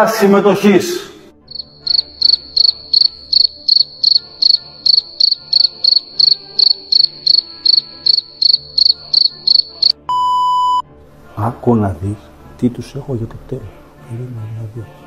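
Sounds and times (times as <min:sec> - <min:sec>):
cricket chirping: 0:01.5 - 0:10.0.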